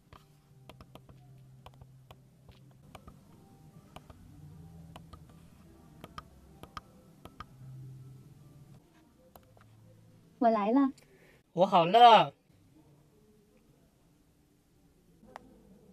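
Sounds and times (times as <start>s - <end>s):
faint low hum: 0.0s - 11.4s.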